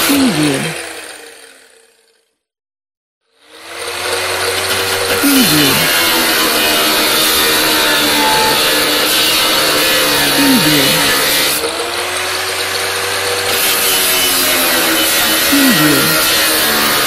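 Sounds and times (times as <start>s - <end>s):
power saw cutting metal: 3.4s - 17.0s.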